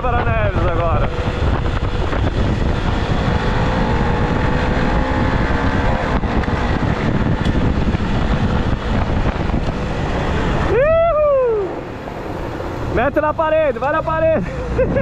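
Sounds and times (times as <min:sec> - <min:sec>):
motorcycle engine running: 0:00.0 - 0:10.8
wind buffeting microphone: 0:00.0 - 0:15.0.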